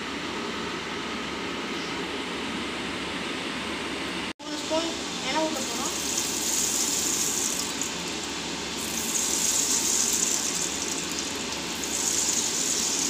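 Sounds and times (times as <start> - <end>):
hot oil sizzling in a frying pan: 5.4 - 13.0.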